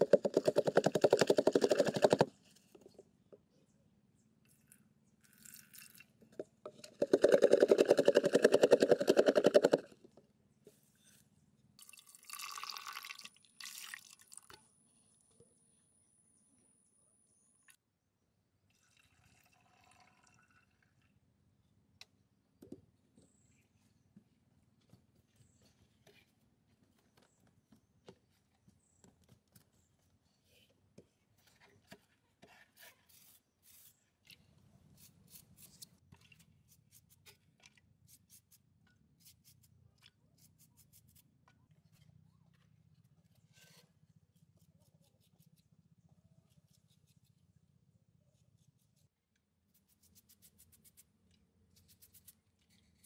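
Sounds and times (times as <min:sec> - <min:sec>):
faint clicks and scrapes: 0:23.2 - 0:47.6, 0:48.3 - 0:53.0.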